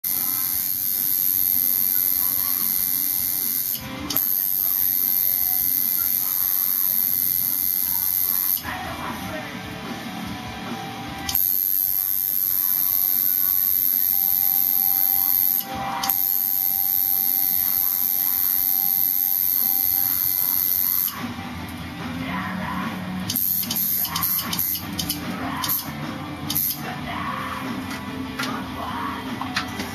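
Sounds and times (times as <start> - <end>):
tattoo machine buzzing: 0.0 - 8.8, 11.0 - 21.3, 22.8 - 26.9.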